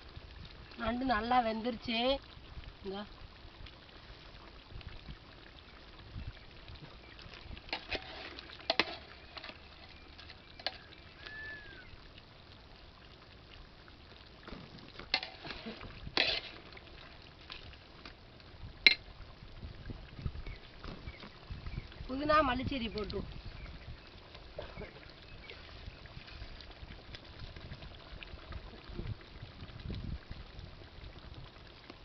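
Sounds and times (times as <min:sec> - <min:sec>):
ladle clinking in metal pot: 0:07.7 - 0:09.6, 0:15.2 - 0:16.6, 0:18.9 - 0:19.1.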